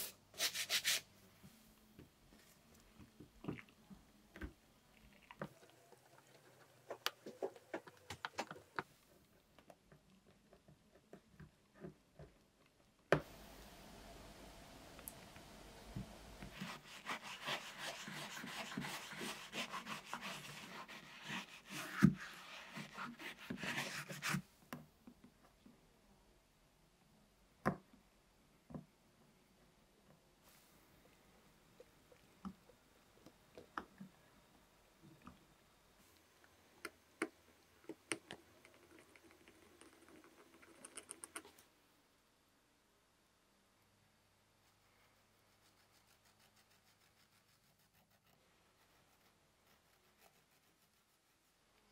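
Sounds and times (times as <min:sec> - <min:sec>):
brush scrubbing shoe insole: 0:16.3 - 0:24.3, 0:45.2 - 0:51.7.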